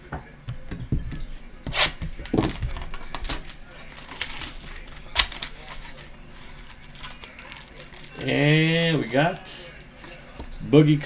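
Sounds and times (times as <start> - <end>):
papery rustles: 1.7 - 10.3.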